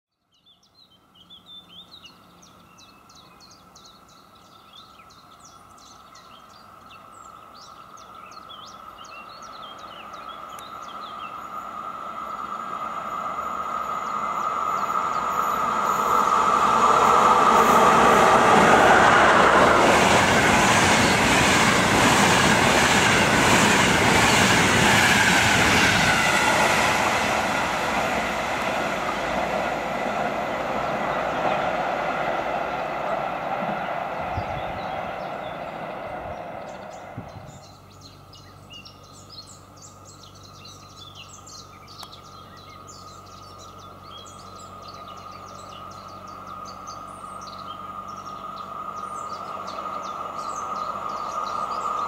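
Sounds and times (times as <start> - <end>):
birds chirping: 0.3 - 52.0
train wheels rumbling on rails: 10.1 - 38.0, 44.6 - 52.0.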